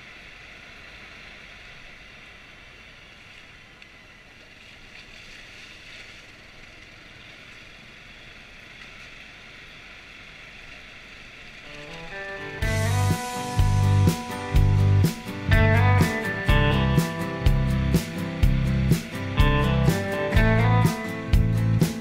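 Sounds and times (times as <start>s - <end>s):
motorcycle engine running: 12.6s - 22.0s.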